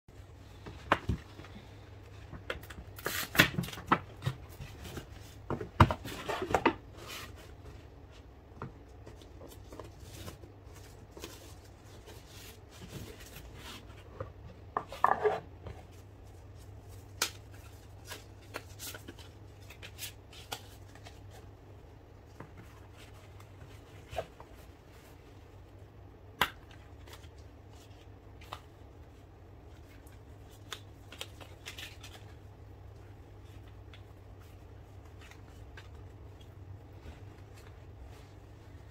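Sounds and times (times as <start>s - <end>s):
paper and cardboard rustling: 8.9s - 21.6s.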